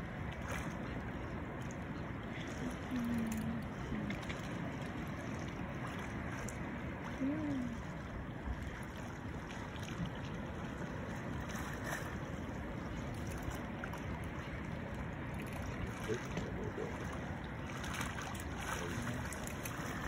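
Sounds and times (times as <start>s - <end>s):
sea water washing: 0.0s - 20.0s
wind: 0.0s - 20.0s.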